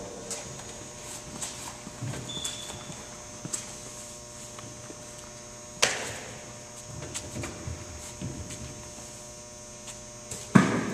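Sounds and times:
steady hum: 0.0 - 10.9
sneaker squeak: 2.2 - 3.1.

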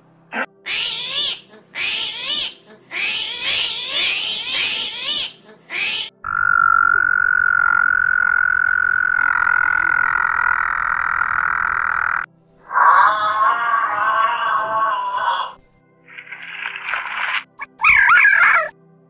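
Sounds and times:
frog high-pitched call: 0.7 - 15.2
wavering sound: 6.2 - 12.3.

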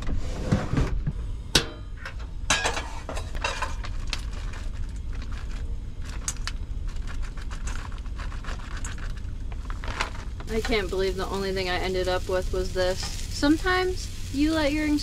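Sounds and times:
low steady rumble: 0.0 - 15.0
rice crackling in hot pan: 3.3 - 15.0.

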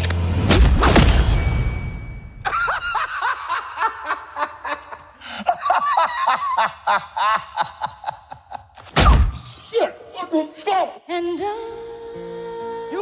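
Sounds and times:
man laughing hard: 2.5 - 8.8.

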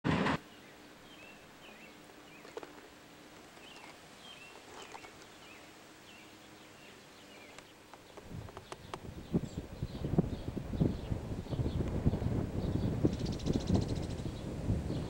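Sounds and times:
birdsong chirping: 0.4 - 15.0.

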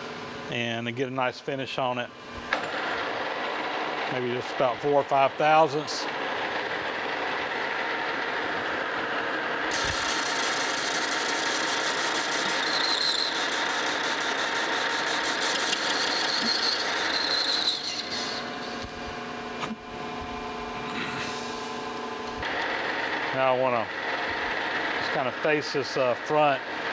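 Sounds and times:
metal lathe running: 2.5 - 19.4, 22.4 - 26.9.

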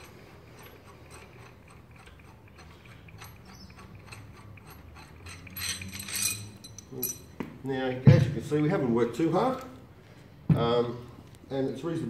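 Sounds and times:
metal parts clattering: 0.0 - 7.3.

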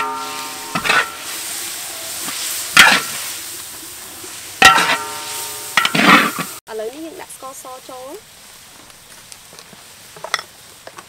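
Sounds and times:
spatula scraping a wok: 0.0 - 6.6
frying sizzle: 0.0 - 11.0.

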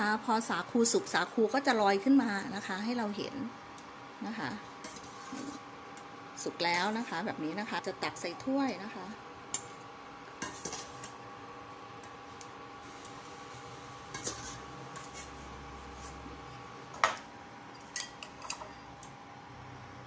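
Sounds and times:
metal utensils clinking on pot: 17.8 - 18.7.

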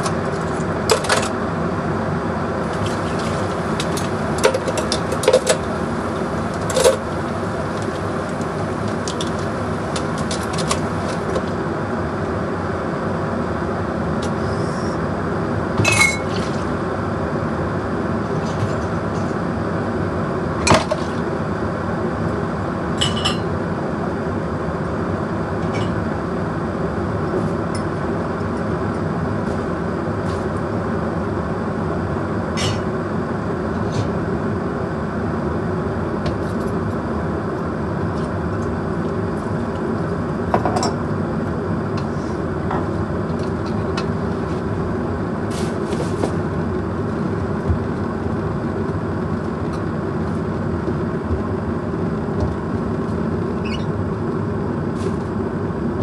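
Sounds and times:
background hum: 0.0 - 56.0
glass and dishes clinking: 15.8 - 16.4, 23.0 - 23.5.

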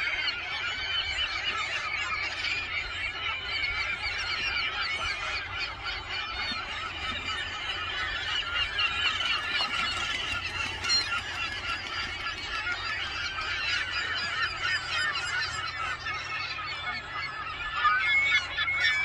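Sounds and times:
gulls calling: 0.0 - 19.0.

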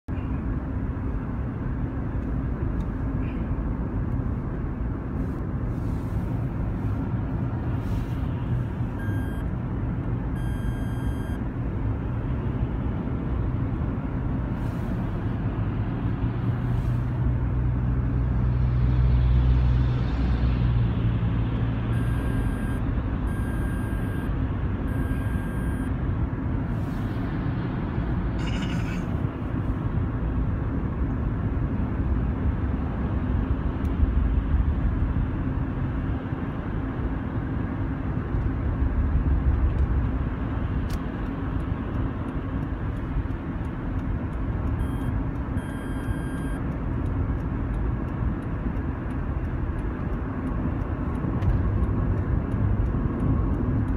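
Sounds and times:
road and engine noise in cabin: 0.0 - 53.9
sensor warning beeping: 9.0 - 9.4, 10.4 - 11.4, 21.9 - 25.9, 44.8 - 46.7.

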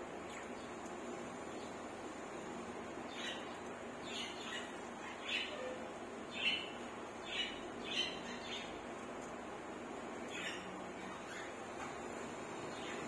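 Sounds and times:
faint room hiss: 0.0 - 13.0
budgerigars chirping softly: 3.1 - 8.8, 10.2 - 11.6, 12.6 - 13.0.

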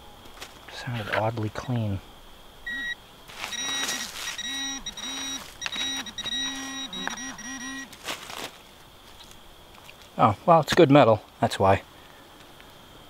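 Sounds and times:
metal detector high beep: 2.6 - 8.0
hand digger scraping soil: 3.3 - 8.6.

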